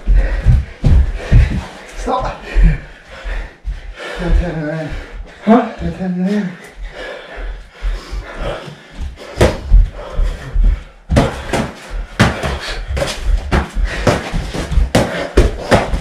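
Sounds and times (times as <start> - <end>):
boxing gloves punching: 11.1 - 16.0.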